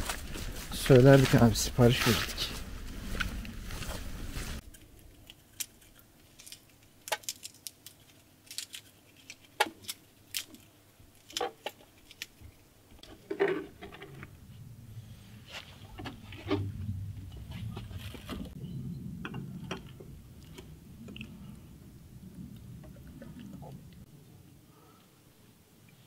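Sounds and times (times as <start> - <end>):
rustle or scrape: 0.0 - 6.7, 13.0 - 18.6.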